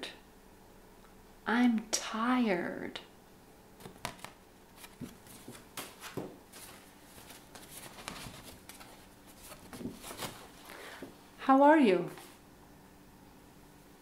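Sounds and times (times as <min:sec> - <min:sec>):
paper cards rustling: 0:03.8 - 0:11.1.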